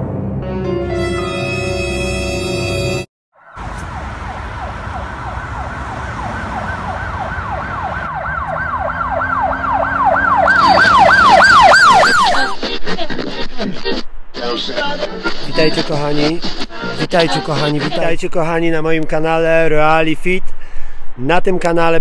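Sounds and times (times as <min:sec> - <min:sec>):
emergency siren yelping: 0:03.4 - 0:12.6.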